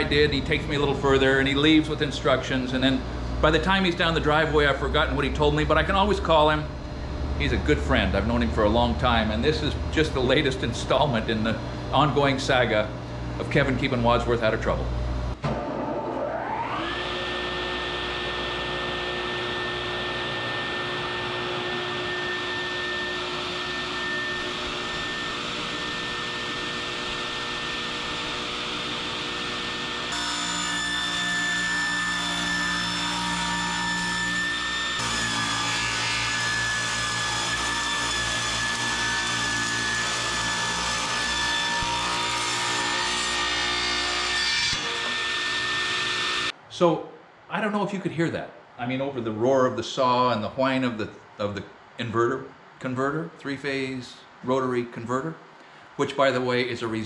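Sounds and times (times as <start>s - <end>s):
table saw whining: 15.4s - 46.6s
saw blade cutting wood: 16.6s - 46.5s.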